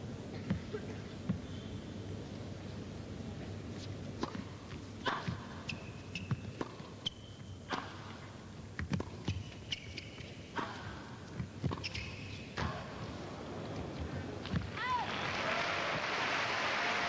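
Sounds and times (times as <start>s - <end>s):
sneakers squeaking on court: 5.1s - 7.6s, 8.8s - 10.5s, 11.3s - 12.8s
tennis ball struck by rackets: 6.2s - 6.9s.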